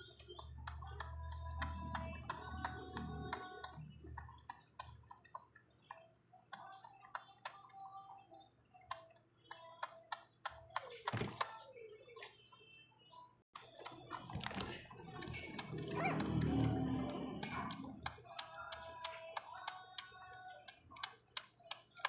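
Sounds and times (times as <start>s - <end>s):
puppy squeaks: 15.4s - 16.4s
puppy whine: 15.6s - 17.9s.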